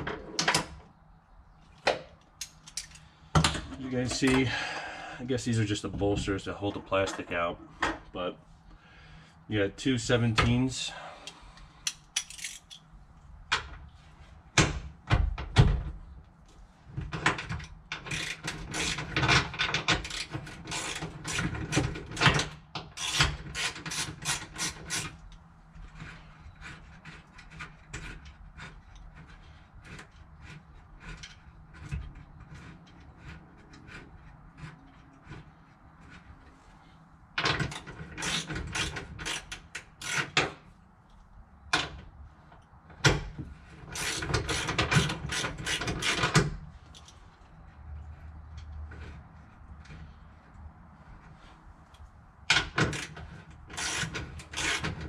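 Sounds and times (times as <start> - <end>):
hand ratchet clicking: 18.0 - 19.1, 23.0 - 25.4, 37.7 - 40.6, 43.9 - 47.1, 52.8 - 55.0.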